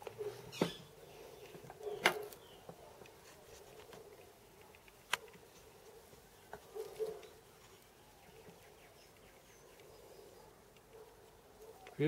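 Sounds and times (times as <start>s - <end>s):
sharp clicks: 4.2s - 5.5s.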